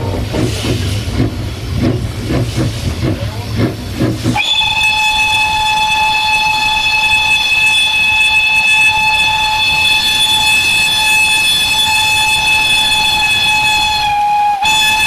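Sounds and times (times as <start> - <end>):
steam locomotive chuffing: 0.0 - 15.0
steam whistle blast: 4.4 - 15.0.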